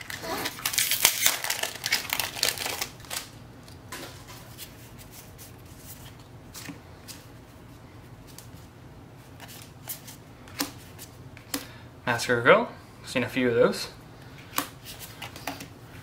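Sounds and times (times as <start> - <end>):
foil wrapper crinkling: 0.0 - 3.4.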